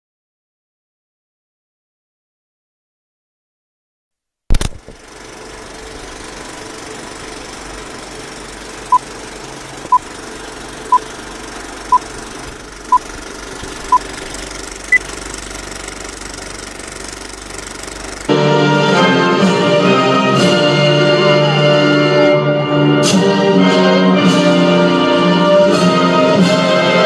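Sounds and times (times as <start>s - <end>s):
film projector rattle: 4.5s - 18.3s
orchestral music with brass: 18.3s - 27.0s.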